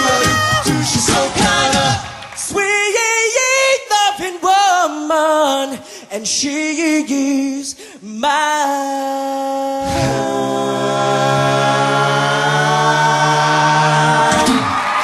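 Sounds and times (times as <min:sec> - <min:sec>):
low bass vocals: 0:09.6 - 0:14.9.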